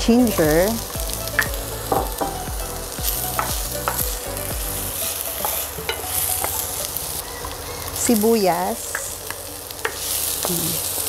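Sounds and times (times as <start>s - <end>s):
garlic sizzling in a frying pan: 0.0s - 11.0s.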